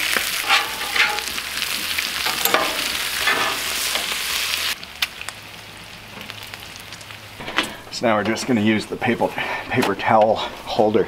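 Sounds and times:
spatulas scraping a griddle: 0:00.0 - 0:04.3
bacon sizzling on a griddle: 0:00.0 - 0:08.5.

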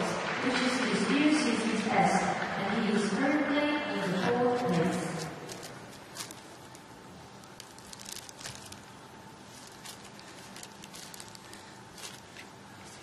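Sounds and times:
faint steady whine: 0:00.0 - 0:13.0
small clicks and crackles: 0:05.5 - 0:13.0.

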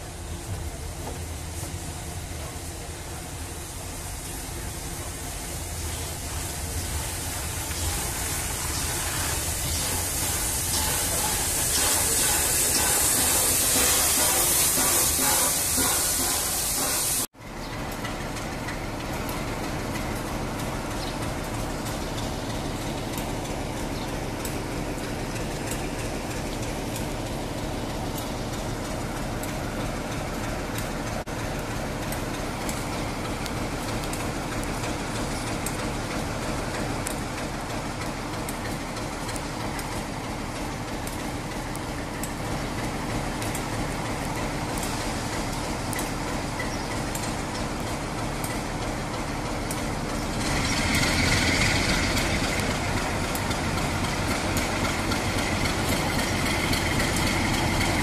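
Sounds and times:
diesel locomotive engine idling: 0:00.0 - 0:58.0
loud hiss: 0:00.3 - 0:17.3.

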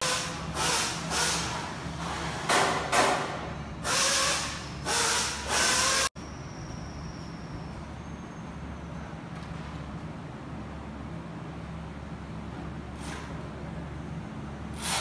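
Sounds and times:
workshop hum: 0:00.0 - 0:15.0
compressed air hissing: 0:14.7 - 0:15.0.

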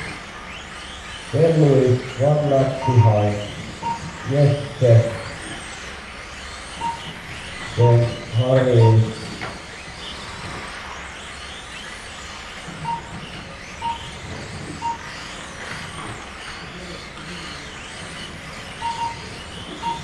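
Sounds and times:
whine of small electric motors: 0:00.0 - 0:20.0
lap timer beeps: 0:01.4 - 0:05.3, 0:06.8 - 0:09.4, 0:12.8 - 0:15.2, 0:18.8 - 0:20.0.

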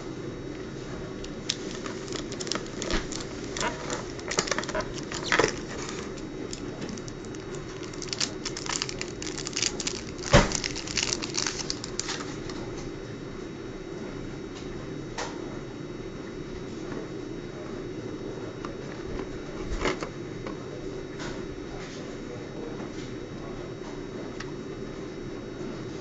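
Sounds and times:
plastic packaging crackling: 0:01.2 - 0:12.6.

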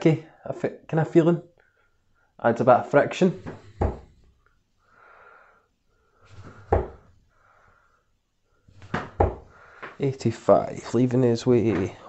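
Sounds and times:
dart thudding into dartboard: 0:08.8 - 0:10.0.

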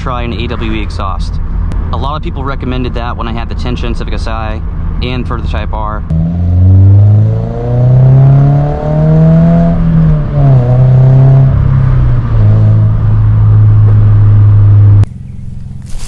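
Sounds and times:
car engine accelerating: 0:06.1 - 0:15.8.

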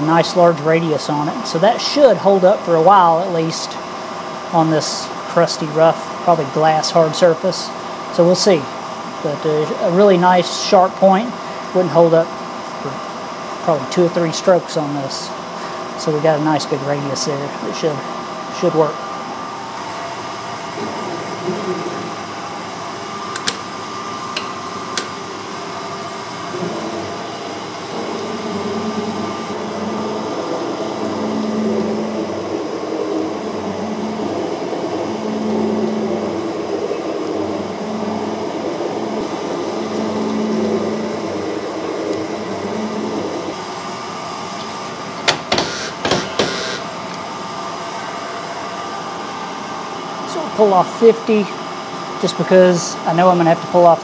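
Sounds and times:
metal shaper motor hum: 0:19.4 - 0:49.9.

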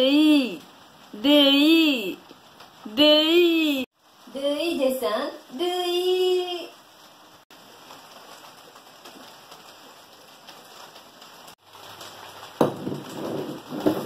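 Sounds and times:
rustling and shuffling on tiled floor: 0:07.3 - 0:14.0
sudden knock: 0:12.6 - 0:14.0.

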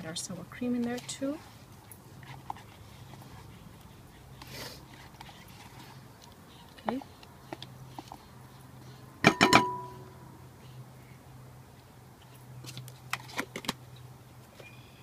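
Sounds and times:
spatula knocking glass bowl: 0:09.2 - 0:10.0.

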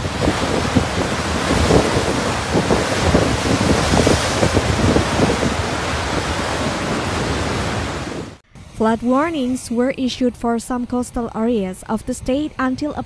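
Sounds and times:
surf crashing on rocks: 0:00.0 - 0:08.4
wind buffeting microphone: 0:00.0 - 0:08.4.

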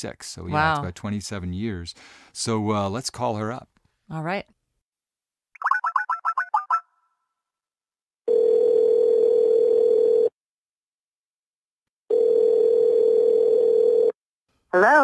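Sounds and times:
telephone ringback tone: 0:08.3 - 0:10.3, 0:12.1 - 0:14.2.

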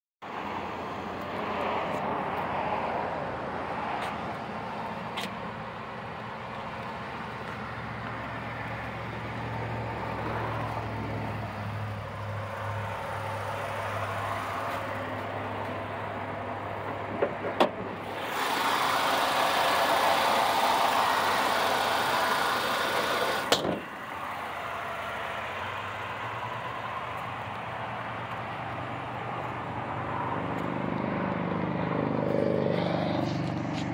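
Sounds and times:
car engine idling: 0:04.3 - 0:29.9.

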